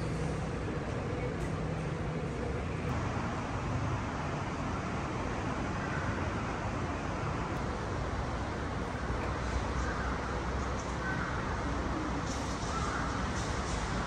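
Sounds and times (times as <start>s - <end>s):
city traffic rumble: 0.0s - 14.0s.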